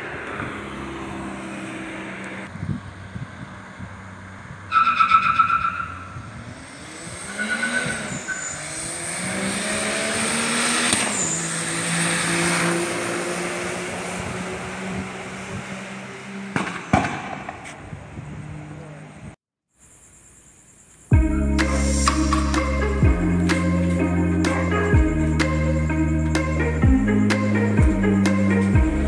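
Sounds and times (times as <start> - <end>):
car engine revving: 0.0 - 17.5, 21.3 - 29.0
short high squeal: 7.2 - 8.9, 10.8 - 12.2.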